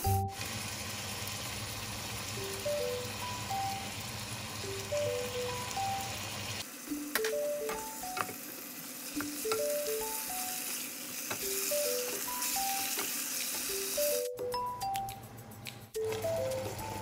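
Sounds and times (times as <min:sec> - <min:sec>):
simple melody of short notes: 0:00.0 - 0:00.4, 0:02.4 - 0:04.0, 0:04.6 - 0:06.3, 0:06.9 - 0:08.4, 0:09.2 - 0:10.7, 0:11.4 - 0:13.0, 0:13.7 - 0:15.3, 0:16.0 - 0:17.0
meat sizzling in hot oil: 0:00.0 - 0:07.1, 0:07.9 - 0:14.3.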